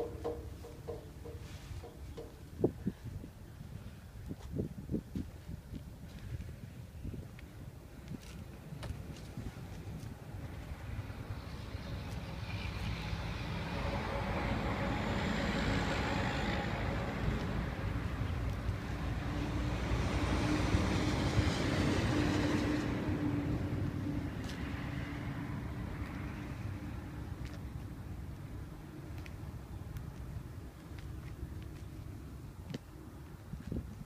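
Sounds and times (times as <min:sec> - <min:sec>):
motor vehicle passing by: 0:10.6 - 0:27.8.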